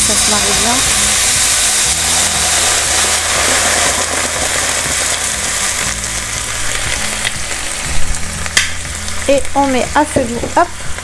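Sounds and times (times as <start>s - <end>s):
vegetables sizzling in a hot pan: 0.0s - 11.0s
wine poured into pan: 0.4s - 8.2s.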